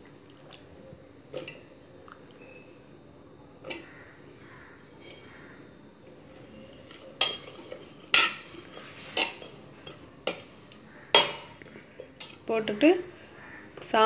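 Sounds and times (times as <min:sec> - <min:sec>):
metal ladle clanking on pot: 0:06.9 - 0:12.4.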